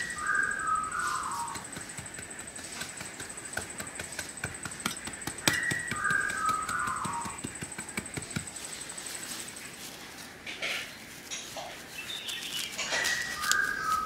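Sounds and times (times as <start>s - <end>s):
stick scraping through soil: 0.3s - 5.2s, 8.4s - 14.0s.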